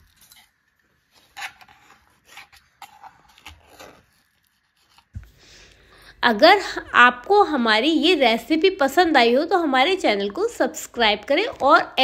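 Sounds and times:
knife scraping a steel plate: 1.2 - 4.2.

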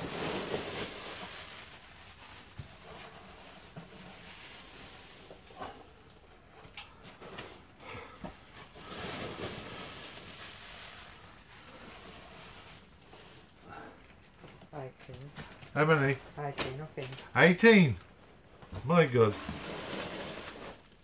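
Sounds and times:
hands rummaging through packing peanuts: 0.0 - 6.0, 8.3 - 14.6, 18.8 - 21.0.

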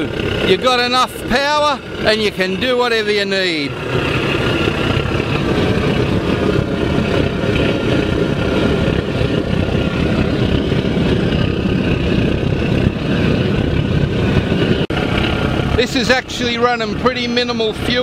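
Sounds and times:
oil burner roaring: 0.0 - 18.0.

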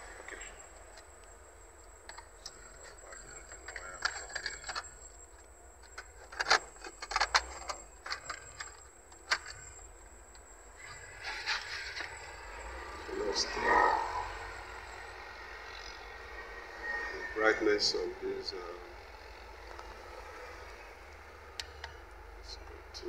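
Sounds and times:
car stereo clicks and rattles: 2.0 - 10.5.

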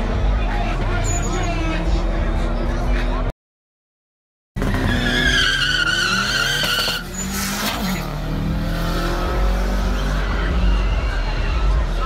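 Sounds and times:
car engines revving: 0.0 - 3.3, 4.6 - 12.0
tyres squealing: 4.9 - 7.8.

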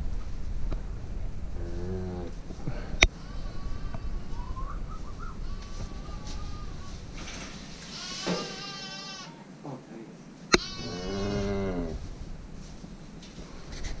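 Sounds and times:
livestock calling: 3.0 - 7.2, 7.8 - 9.5, 10.5 - 12.0.

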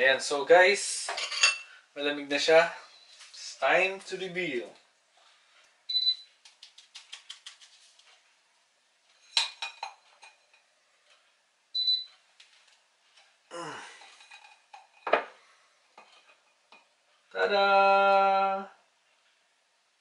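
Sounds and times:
short high beeps: 5.9 - 6.3, 11.8 - 12.1.

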